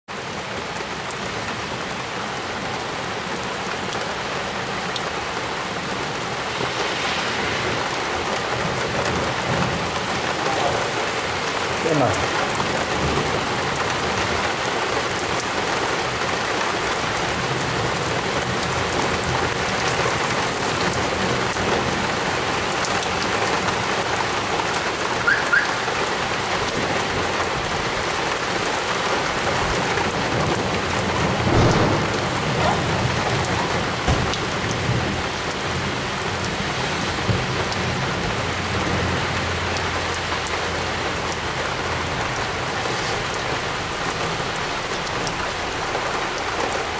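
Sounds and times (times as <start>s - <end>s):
torrential rain hiss: 0.1s - 46.9s
low rumble of thunder: 29.4s - 38.1s.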